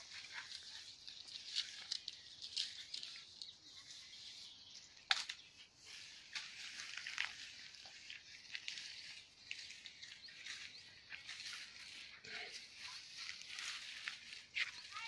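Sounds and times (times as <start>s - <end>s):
dry brush rustling and crackling: 0.0s - 15.0s
twig snapping: 5.1s - 5.4s.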